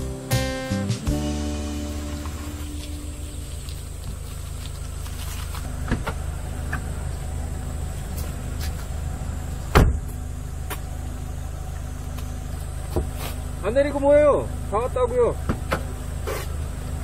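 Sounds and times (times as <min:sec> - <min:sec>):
car engine idling: 0:00.0 - 0:17.0
car door thump shut: 0:05.8 - 0:06.8, 0:09.7 - 0:10.1, 0:15.4 - 0:16.5
car door clicks: 0:09.7 - 0:10.1.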